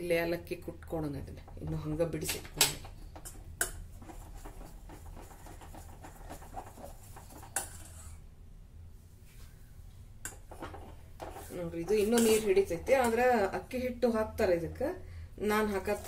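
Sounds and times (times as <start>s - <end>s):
spoon scraping in pot: 3.1s - 8.3s, 10.3s - 13.2s.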